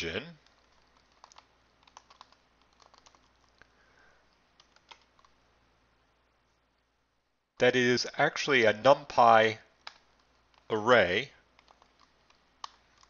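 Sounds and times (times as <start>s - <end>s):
typing on computer keyboard: 0.4s - 3.7s, 4.6s - 5.4s, 11.6s - 13.0s.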